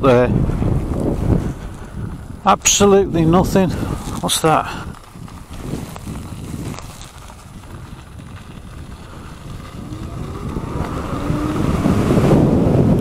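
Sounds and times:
tyre and wind noise: 0.0 - 13.0
electric motor whining: 9.7 - 12.5.

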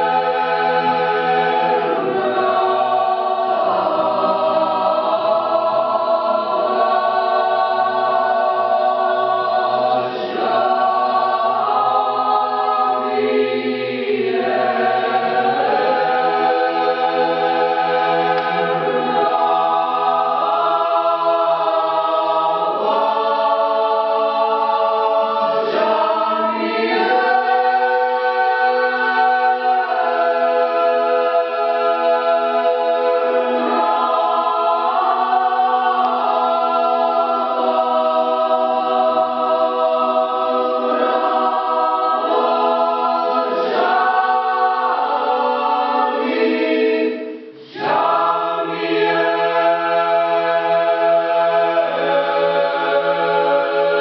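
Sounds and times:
choir singing a cappella: 0.0 - 54.0.

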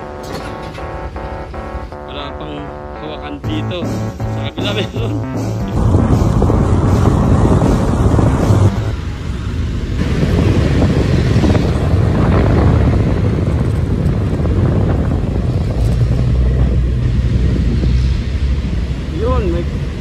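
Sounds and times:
motorcycle engine rumble: 0.0 - 19.1
surrounding traffic: 0.0 - 20.0
wind buffeting microphone: 5.2 - 20.0.

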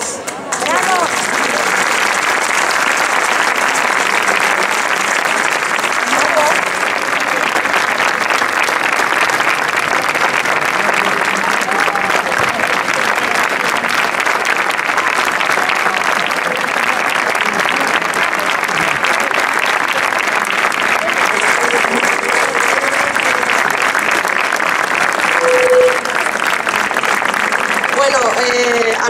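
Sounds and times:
audience applause: 0.4 - 29.0
voices calling out: 20.5 - 26.2.

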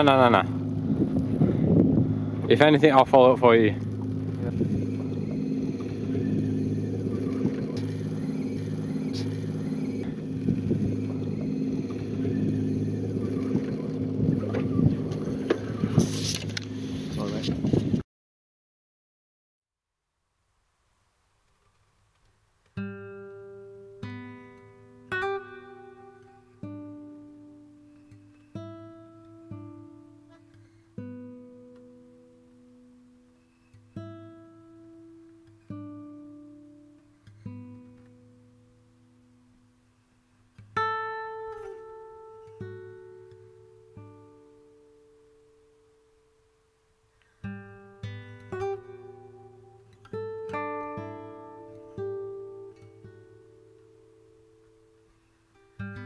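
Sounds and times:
acoustic guitar strummed chords: 0.0 - 17.6, 22.8 - 56.0
boat motor running: 0.0 - 18.0.

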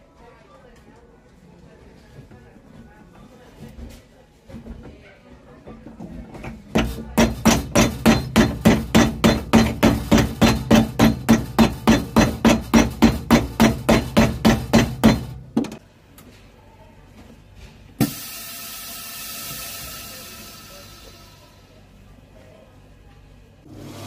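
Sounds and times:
hammer beating shoe sole: 6.7 - 15.8.

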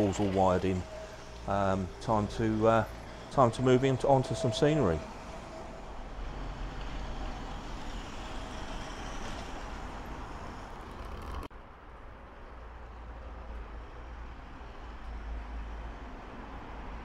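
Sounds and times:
model train running on track: 0.0 - 11.3.

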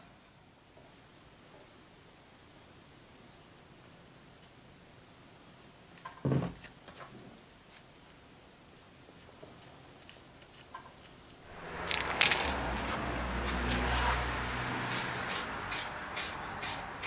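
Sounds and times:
low rumble: 11.5 - 15.2
aerosol spray hissing: 14.8 - 17.0.

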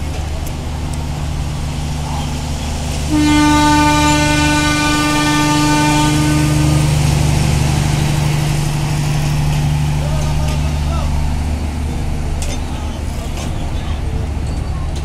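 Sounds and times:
diesel locomotive engine droning: 0.0 - 15.0
train horn blast: 3.1 - 7.2.

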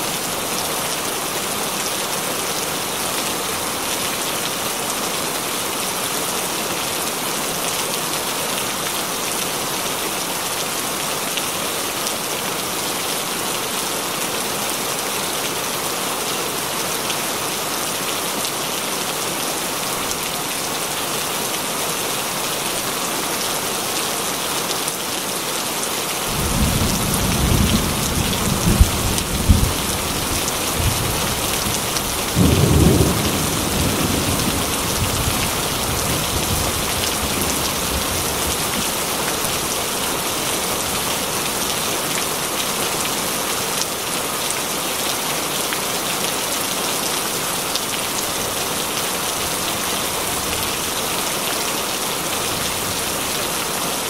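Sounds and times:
steady rain: 0.0 - 54.0.

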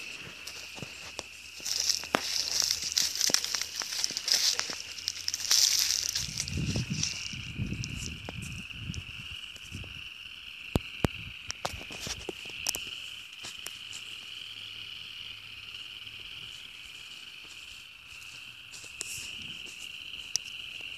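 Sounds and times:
distant frog chorus: 0.0 - 20.9.

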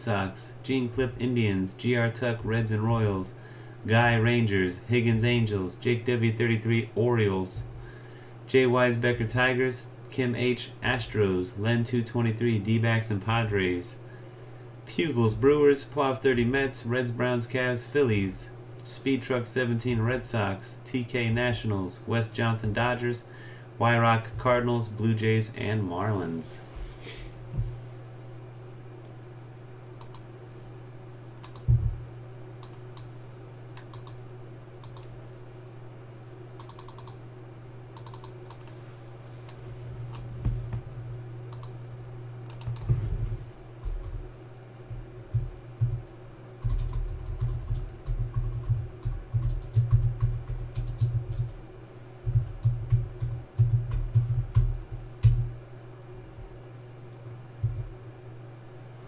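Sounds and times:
steady low hum: 0.0 - 59.0
keyboard typing: 31.4 - 31.8, 33.8 - 34.2, 34.8 - 35.1, 36.6 - 37.2, 38.0 - 38.6, 42.5 - 42.9, 46.6 - 51.6, 52.3 - 55.5.

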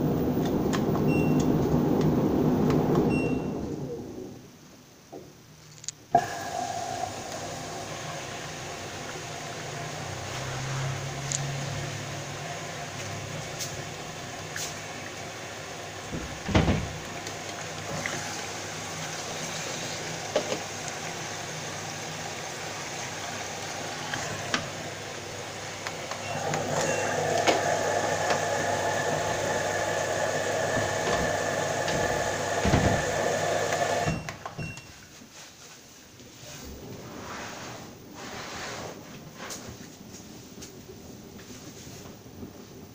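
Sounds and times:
washing machine motor running: 6.2 - 34.3.

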